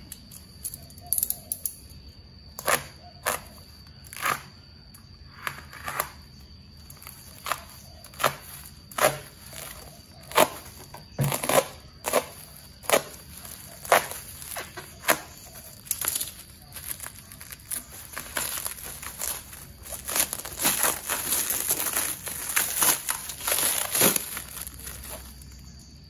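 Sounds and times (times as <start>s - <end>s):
plastic wrapping crackling: 7.0s - 25.7s
cutter knife slitting plastic: 7.4s - 25.2s.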